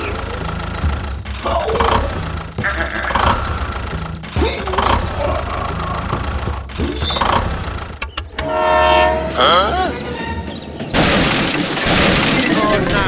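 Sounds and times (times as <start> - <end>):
tractor engine rumble: 0.0 - 8.6, 9.7 - 13.0.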